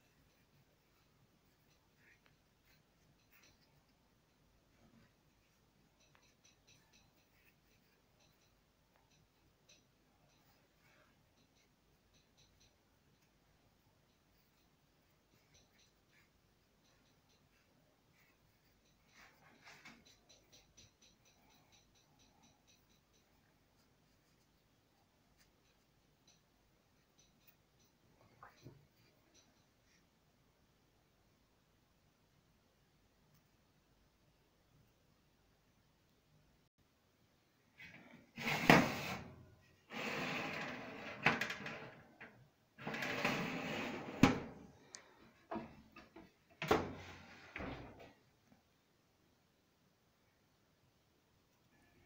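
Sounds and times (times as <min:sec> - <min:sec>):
rapid light ticking: 0:00.0 - 0:30.5
metal tray scraping on oven rack: 0:38.4 - 0:39.3, 0:39.9 - 0:42.0, 0:42.8 - 0:44.6.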